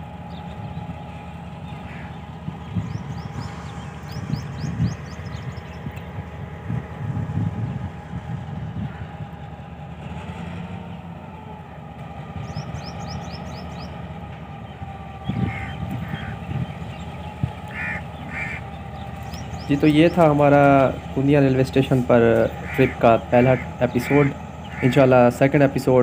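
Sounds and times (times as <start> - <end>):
birds chirping: 0.0 - 26.0
diesel locomotive engine droning: 0.0 - 26.0.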